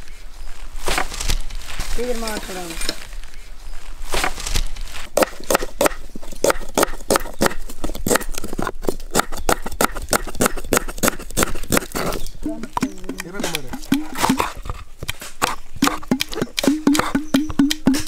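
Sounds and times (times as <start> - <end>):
chopping strokes: 5.2 - 18.0.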